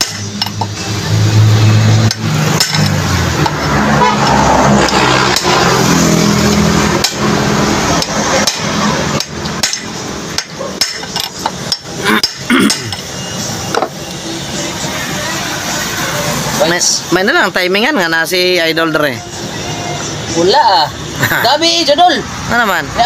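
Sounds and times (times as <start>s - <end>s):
hammer striking steel pipe: 8.0s - 13.0s.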